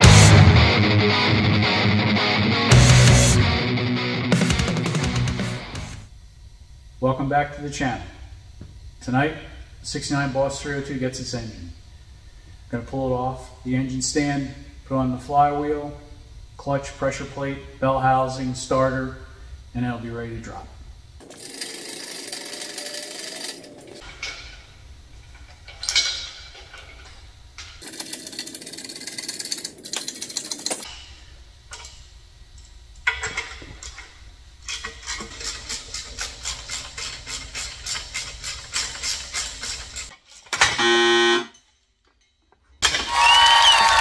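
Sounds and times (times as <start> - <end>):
metal tools clattering: 25.3 - 30.9
ratchet clicking: 27.8 - 30.9, 34.7 - 40.5
horn-like tone: 40.6 - 41.6.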